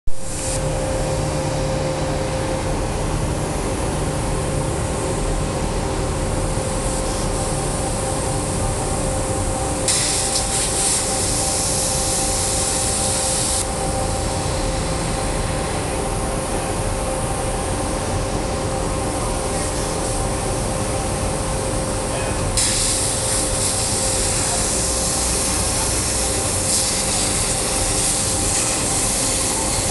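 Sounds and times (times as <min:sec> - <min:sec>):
plasma cutter hissing: 0:00.2 - 0:00.7, 0:06.7 - 0:08.5, 0:09.8 - 0:15.4, 0:22.1 - 0:29.9
constant whine: 0:00.2 - 0:29.9.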